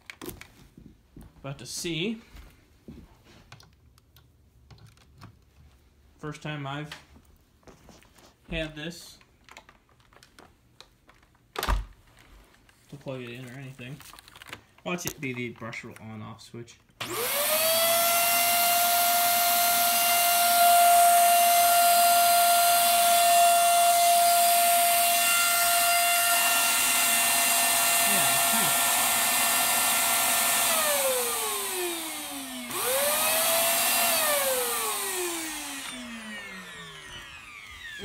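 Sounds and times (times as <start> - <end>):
vacuum cleaner motor whining: 17.0 - 38.0.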